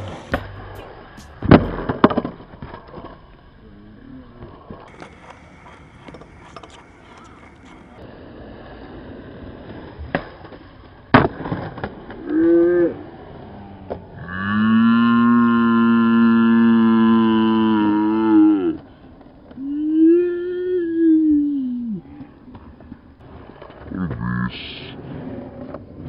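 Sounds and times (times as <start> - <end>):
loud steady pitched tone: 0.0 - 2.1
skateboard clacks: 0.0 - 3.5, 4.4 - 8.1, 8.8 - 14.3, 22.0 - 24.3, 25.0 - 26.0
skateboard wheels rolling on concrete: 0.0 - 26.0.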